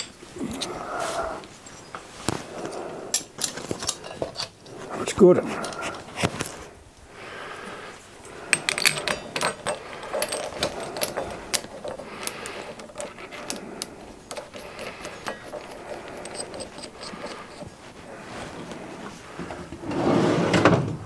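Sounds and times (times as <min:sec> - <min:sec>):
metal clamp parts clinking: 0:03.1 - 0:04.7, 0:05.5 - 0:06.7, 0:08.4 - 0:17.9.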